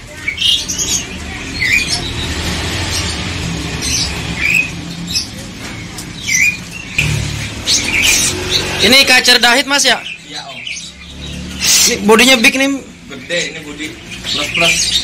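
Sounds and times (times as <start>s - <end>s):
songbirds chirping: 0.0s - 15.0s.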